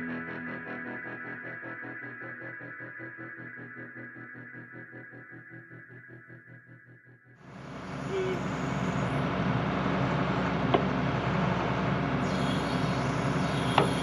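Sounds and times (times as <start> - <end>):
excavator engine: 7.5 - 14.0
hydraulic breaker hammer pounding: 13.6 - 14.0.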